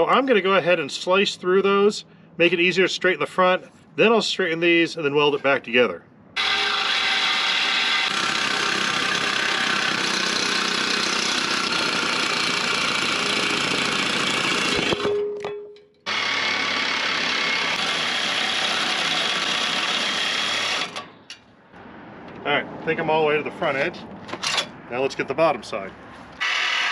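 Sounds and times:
power tool cutting steel: 0:06.4 - 0:15.2, 0:16.1 - 0:21.1, 0:26.4 - 0:26.9.

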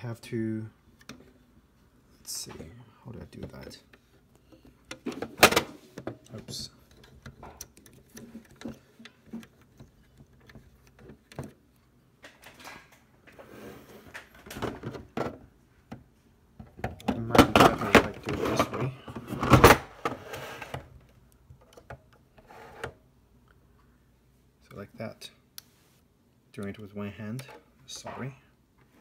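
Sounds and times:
plastic clicks and rustles: 0:03.4 - 0:11.6.

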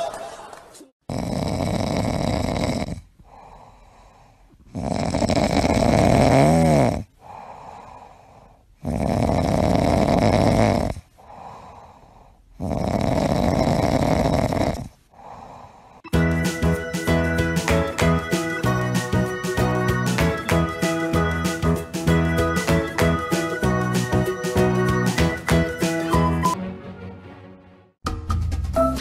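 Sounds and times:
cat snoring: 0:01.1 - 0:04.0, 0:04.6 - 0:15.8
cat breathing softly: 0:07.2 - 0:08.7.

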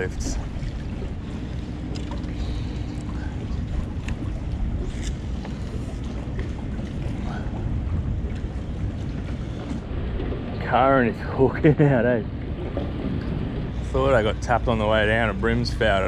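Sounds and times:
water lapping at boat: 0:00.0 - 0:16.0
wind rumbling on microphone: 0:00.0 - 0:16.0.

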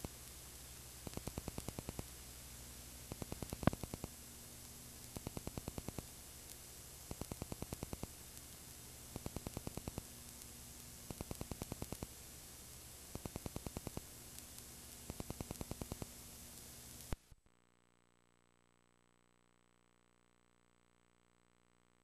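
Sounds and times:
videotape hiss: 0:00.0 - 0:22.0
rapid clicks: 0:01.0 - 0:02.2, 0:03.0 - 0:12.1, 0:13.0 - 0:17.2.

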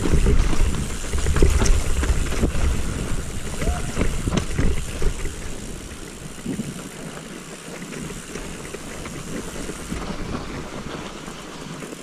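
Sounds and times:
bike frame rattling and knocking: 0:00.0 - 0:06.9
bike tyres running through snow: 0:00.0 - 0:12.0.

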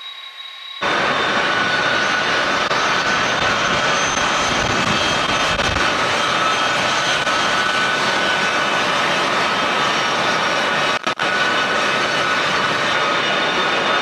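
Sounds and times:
thin high whine: 0:00.0 - 0:08.4
jet engine roar: 0:00.0 - 0:14.0.

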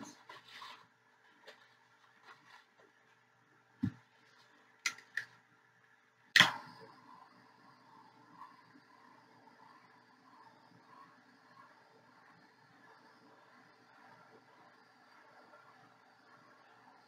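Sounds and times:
torch flame hissing: 0:06.3 - 0:17.0.

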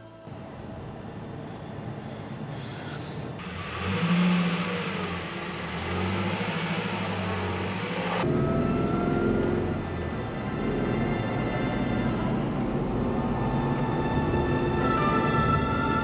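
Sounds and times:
road noise: 0:00.0 - 0:16.0
car engine accelerating: 0:03.4 - 0:16.0.

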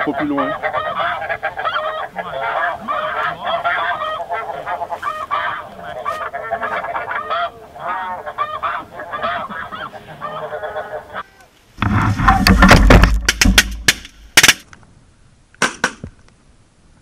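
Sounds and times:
geese honking: 0:00.0 - 0:12.8.

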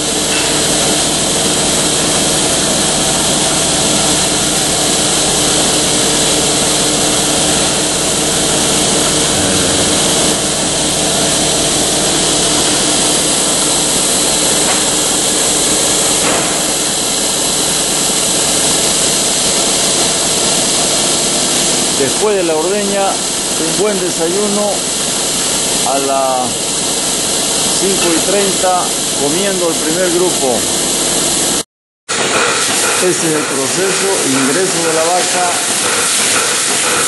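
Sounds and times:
vacuum pump drone: 0:00.0 - 0:37.0.

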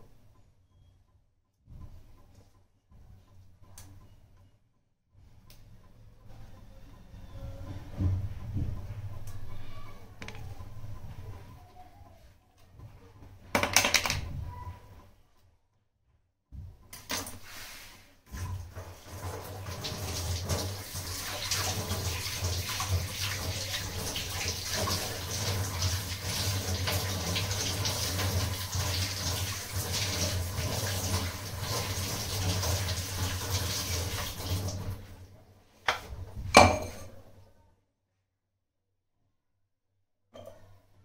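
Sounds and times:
tap water running into steel sink: 0:18.7 - 0:35.1.

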